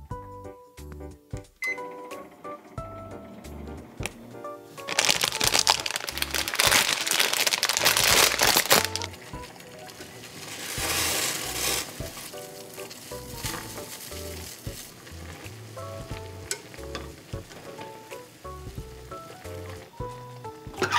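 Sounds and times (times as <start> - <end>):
background music: 0.0 - 20.9
boiling water hissing: 2.4 - 20.9
plastic wrapper crinkling: 4.8 - 16.1.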